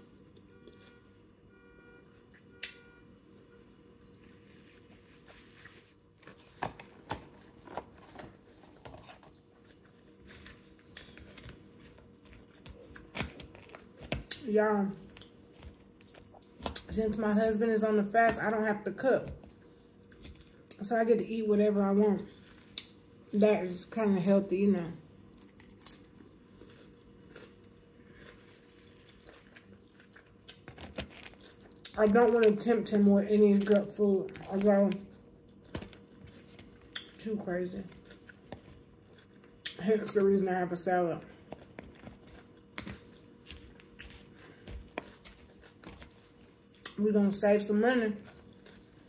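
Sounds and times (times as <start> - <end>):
chewing crunchy salad: 4.0 - 16.9, 25.3 - 40.2, 41.3 - 47.0, 48.2 - 49.0.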